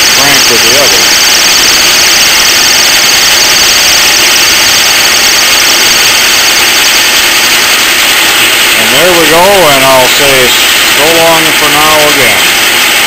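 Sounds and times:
metal lathe cutting aluminum: 0:00.0 - 0:13.0.

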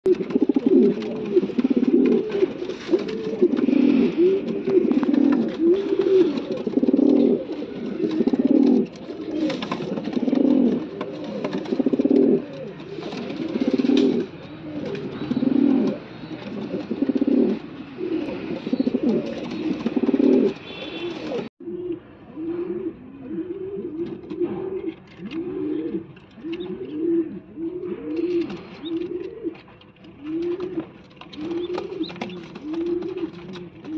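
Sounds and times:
pigeons cooing: 0:00.1 - 0:33.9.

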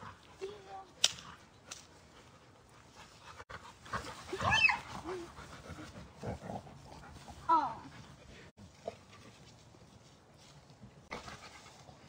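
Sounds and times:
dog panting: 0:01.4 - 0:09.4.

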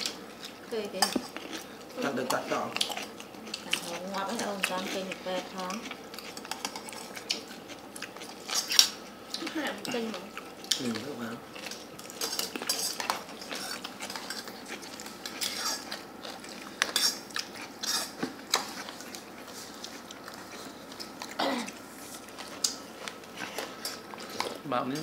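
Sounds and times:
chewing: 0:00.0 - 0:25.0.

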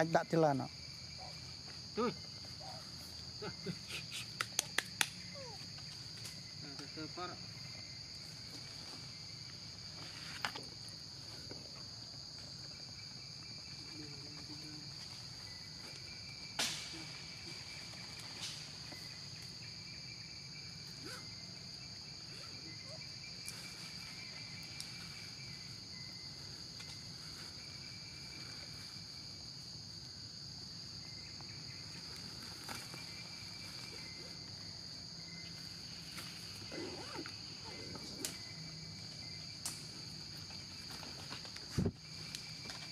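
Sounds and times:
faint insect trilling: 0:00.0 - 0:42.9
insects droning: 0:00.0 - 0:42.9.

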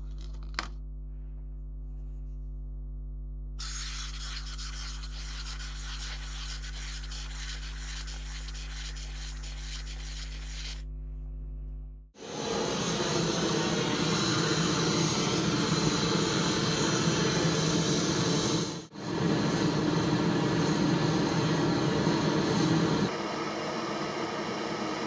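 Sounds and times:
constant low hum: 0:00.0 - 0:08.3, 0:10.8 - 0:23.5
crackling fizz of foaming liquid: 0:03.6 - 0:10.8.

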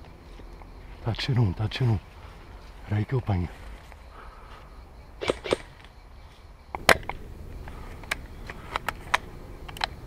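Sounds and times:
airsoft rifle shot: 0:05.2 - 0:05.8
light sharp clicks: 0:06.7 - 0:10.0.

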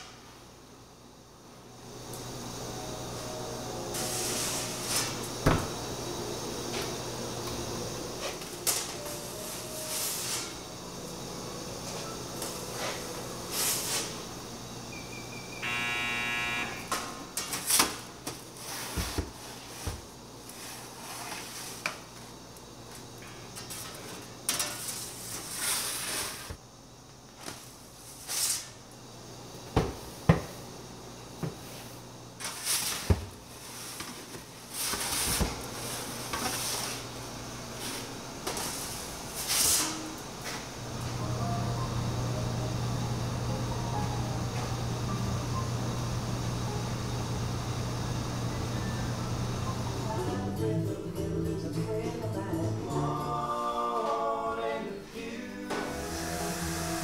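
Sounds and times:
steady low hum: 0:00.0 - 0:25.6, 0:28.8 - 0:57.0
brief pitched tone: 0:15.6 - 0:16.9.

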